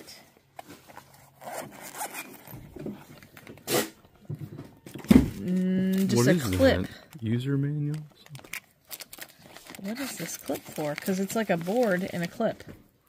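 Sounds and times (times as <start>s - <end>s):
zipper being pulled open: 0.9s - 2.6s.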